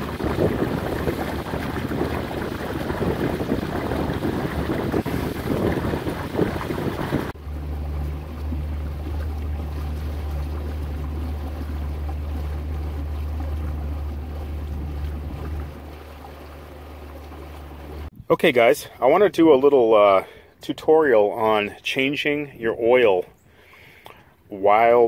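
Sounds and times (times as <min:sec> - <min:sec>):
wind on microphone: 0:00.0 - 0:07.4
outboard motor droning: 0:00.0 - 0:18.1, 0:19.1 - 0:25.0
water rushing along boat hull: 0:00.0 - 0:25.0.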